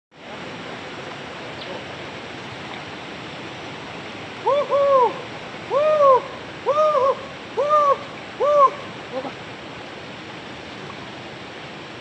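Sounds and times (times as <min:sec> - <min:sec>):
rushing rocky river: 0:00.2 - 0:12.0
hooting calls: 0:04.4 - 0:09.4.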